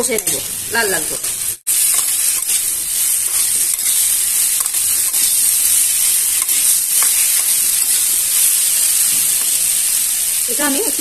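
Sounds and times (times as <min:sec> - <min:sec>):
vegetables sizzling in oil: 0:00.0 - 0:11.0
metal spatula scraping: 0:01.1 - 0:09.7.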